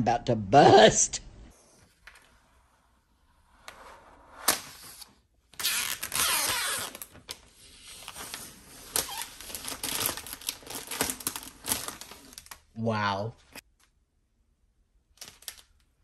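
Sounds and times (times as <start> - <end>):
plastic film being peeled off: 4.4 - 12.7, 15.2 - 15.9.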